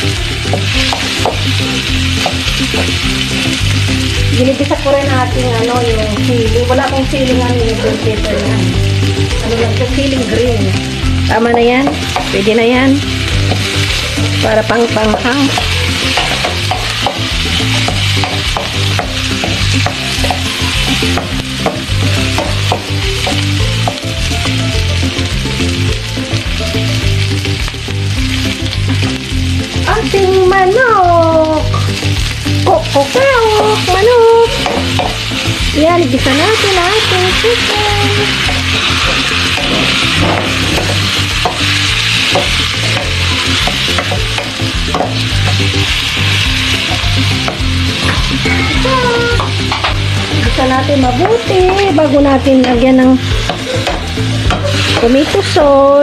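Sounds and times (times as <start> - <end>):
vegetables sizzling in hot oil: 0.0 - 56.0
wooden spatula tapping a pan: 0.5 - 3.0, 11.3 - 12.7, 13.4 - 24.6, 33.4 - 35.3, 38.2 - 45.7, 49.4 - 50.0, 52.6 - 55.4.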